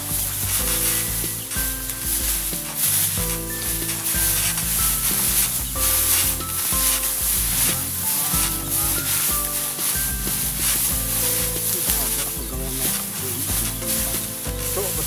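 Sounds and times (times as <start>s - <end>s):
music: 0.0s - 15.0s
straw rustling under feet: 0.0s - 15.0s.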